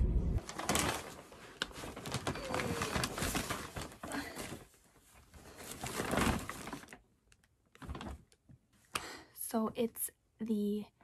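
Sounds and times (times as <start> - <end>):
shopping bags rustling and crinkling: 0.4 - 7.1, 7.7 - 8.3.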